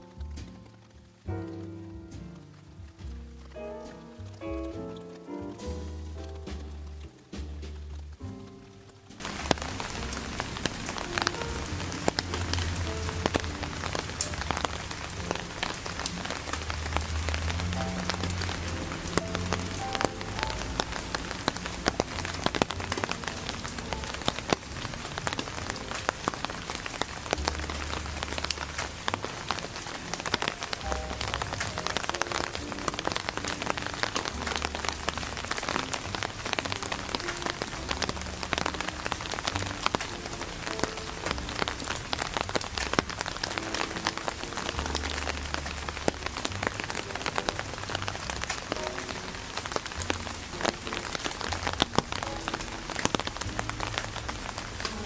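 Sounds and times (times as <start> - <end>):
rain pattering: 0.0 - 55.0.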